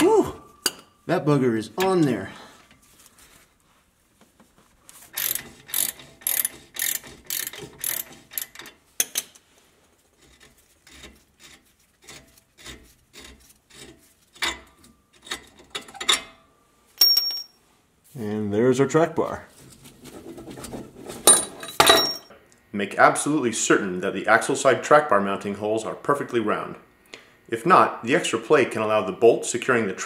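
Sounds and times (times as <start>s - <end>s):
ratchet wrench clicking: 5.1s - 9.2s.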